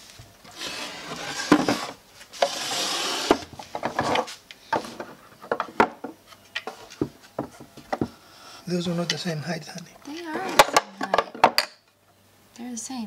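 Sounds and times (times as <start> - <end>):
glass scraping on wood: 0.5 - 5.2.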